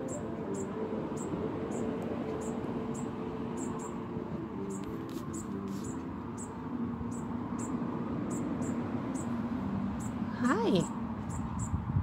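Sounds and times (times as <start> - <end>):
fledgling songbird peeping: 0.0 - 4.0, 4.6 - 9.4.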